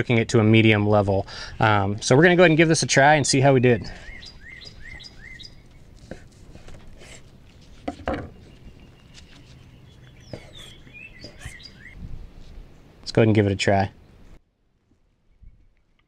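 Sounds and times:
small birds chirping: 0:01.2 - 0:13.2.

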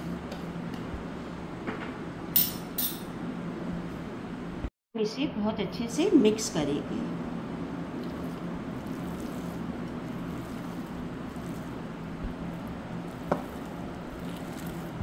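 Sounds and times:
steady low hum: 0:00.0 - 0:15.0
hand squishing raw mince: 0:07.9 - 0:15.0.

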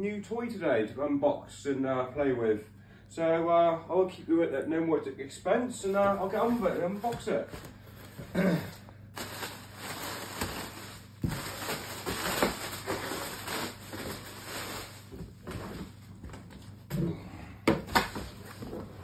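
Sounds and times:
plastic wrap crackling: 0:05.8 - 0:16.4.

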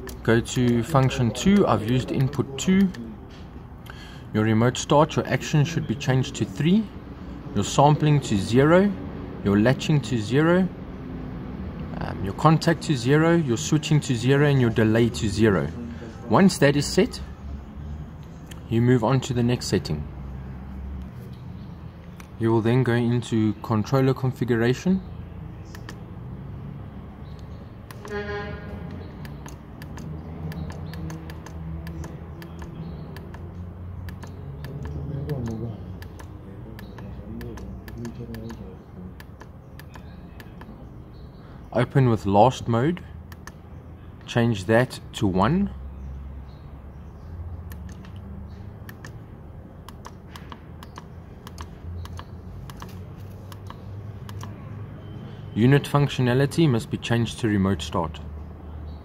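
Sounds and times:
keypad buttons clicking: 0:25.7 - 0:26.1, 0:28.9 - 0:38.6, 0:39.2 - 0:40.8, 0:43.3 - 0:43.6, 0:47.6 - 0:49.2, 0:49.8 - 0:54.6
short honk-like tone: 0:28.0 - 0:28.8.

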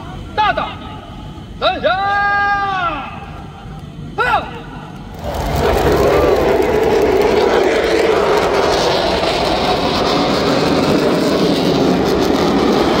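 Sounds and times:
fighter jets flying overhead: 0:05.0 - 0:13.0.

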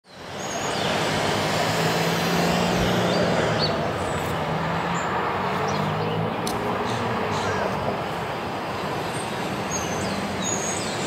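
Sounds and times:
city street traffic: 0:00.0 - 0:11.0.

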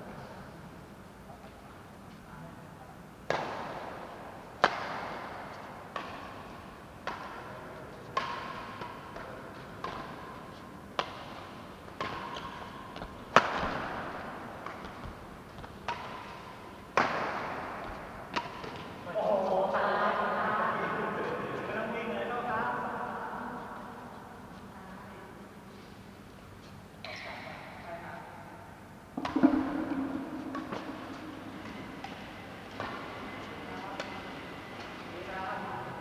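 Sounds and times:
rackets smacking shuttlecock: 0:04.6 - 0:07.5, 0:08.1 - 0:19.1, 0:29.2 - 0:35.0.

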